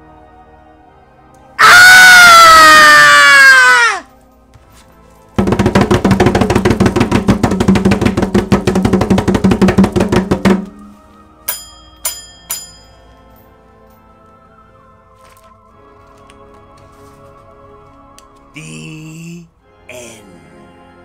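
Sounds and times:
fast drum roll: 5.4s - 10.8s
sharp ringing strikes: 11.5s - 13.4s.

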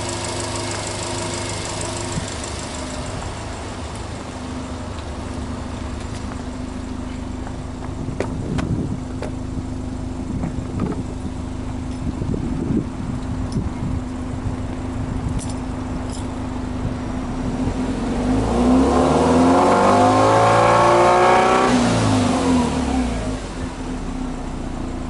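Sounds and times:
fast ticking from engine bay: 0.0s - 3.2s
car engine idling: 0.0s - 18.3s, 21.9s - 25.0s.

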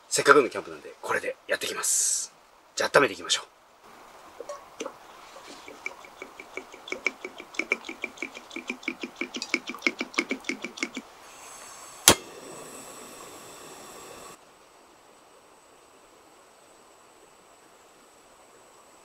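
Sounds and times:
piezo igniter clicking: 5.8s - 11.0s, 12.0s - 12.4s
gas burner hissing: 6.6s - 14.4s
loud sharp click: 12.0s - 12.3s.

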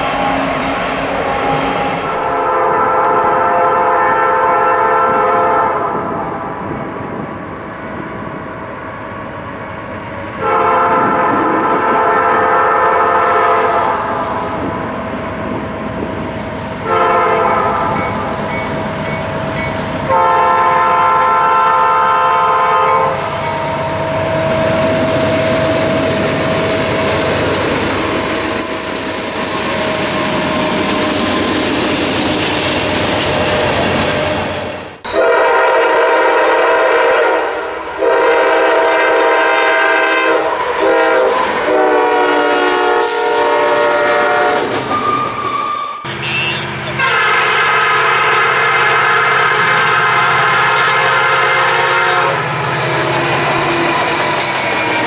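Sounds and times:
locomotive air horn: 0.0s - 6.1s, 10.4s - 14.2s, 16.8s - 18.0s, 20.1s - 25.9s, 35.1s - 52.6s
train rumble and wheel noise: 0.0s - 55.0s.

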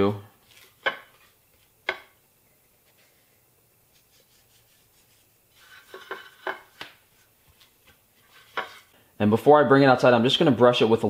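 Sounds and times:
hand rubbing meat: 2.8s - 8.9s
salt sprinkled on steak: 3.9s - 6.0s.

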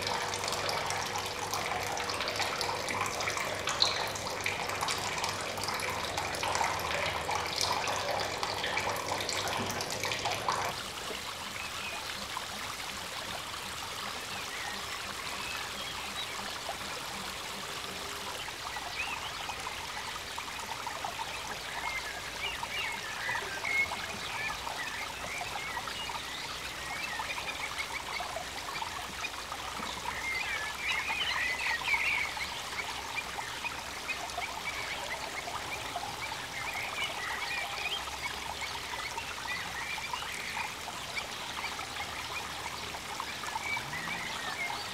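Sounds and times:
water splashing into tub: 0.0s - 10.8s
water trickling: 0.0s - 44.9s.

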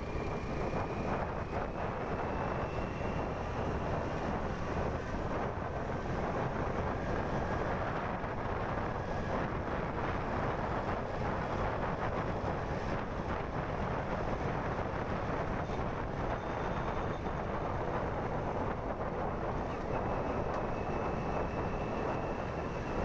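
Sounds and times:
motorbike engine: 0.0s - 23.0s
wind noise on microphone: 0.0s - 23.0s.

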